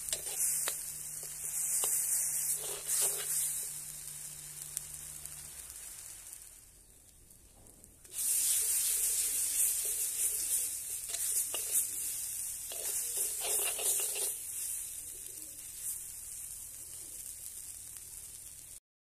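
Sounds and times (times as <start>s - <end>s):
steel ladle scraping a pan: 0.0s - 3.7s, 8.1s - 14.9s
sauce sizzling in a pan: 0.0s - 18.8s.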